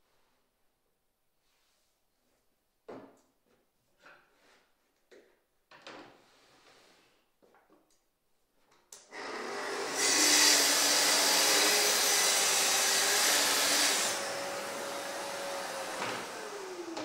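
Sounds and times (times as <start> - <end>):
circular saw cutting wood: 9.1 - 17.0.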